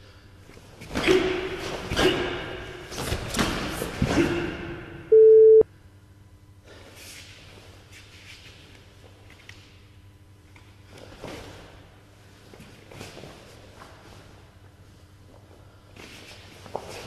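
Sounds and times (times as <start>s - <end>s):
electronic timer beep: 5.1s - 5.6s.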